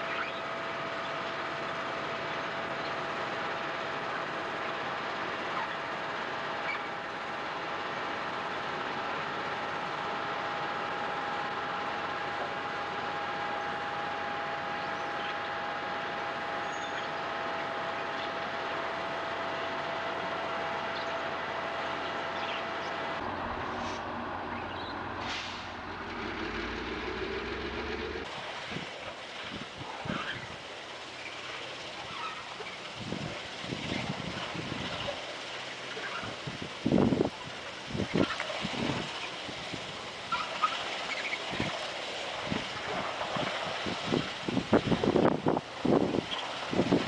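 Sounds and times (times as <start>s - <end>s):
deep steady engine hum: 0.0s - 47.0s
heavy diesel machinery noise: 0.0s - 47.0s
wind buffeting microphone: 32.9s - 35.2s, 36.2s - 40.0s, 42.4s - 47.0s.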